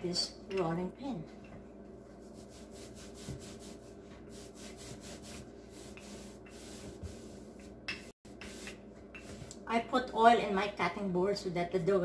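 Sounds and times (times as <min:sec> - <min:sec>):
rolling pin rolling over dough: 0:02.0 - 0:09.6.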